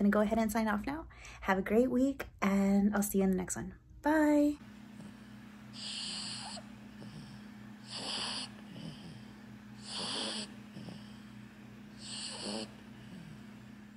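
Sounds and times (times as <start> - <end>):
steady low hum: 0.0 - 13.9
dog breathing in sleep: 5.0 - 13.6.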